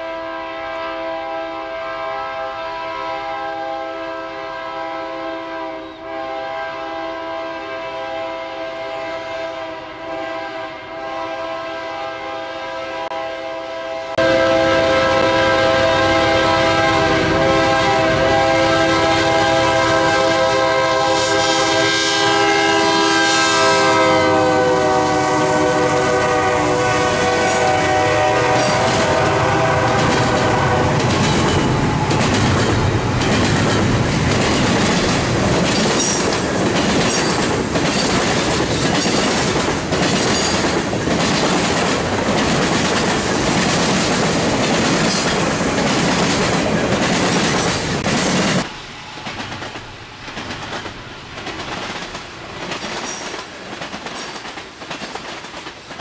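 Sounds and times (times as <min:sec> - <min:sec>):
locomotive air horn blast: 0:00.0 - 0:32.2
freight car wheels clickety-clack: 0:30.0 - 0:56.0.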